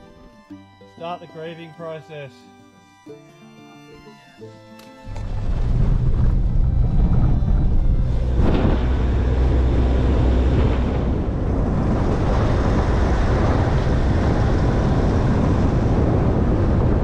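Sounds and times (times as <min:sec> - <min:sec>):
vehicle engine: 0:05.0 - 0:17.0
tyre noise on dirt road: 0:05.1 - 0:17.0
wind buffeting microphone: 0:05.1 - 0:17.0.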